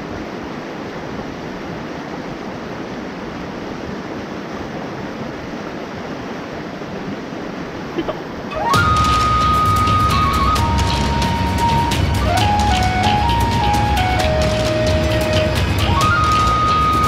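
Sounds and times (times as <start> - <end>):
stream rushing over rocks: 0.0 - 17.0.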